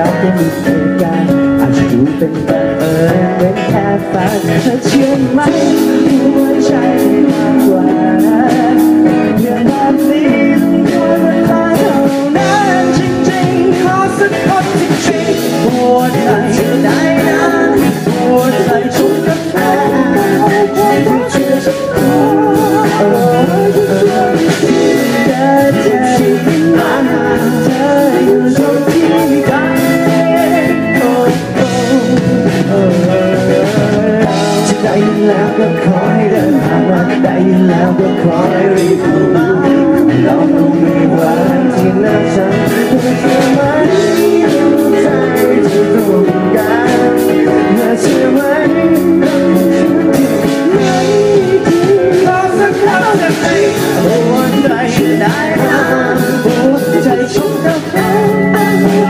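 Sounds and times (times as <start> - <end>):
acoustic guitar: 0.0 - 59.0
drum kit: 0.0 - 59.0
keyboard: 0.0 - 59.0
person singing: 0.0 - 59.0.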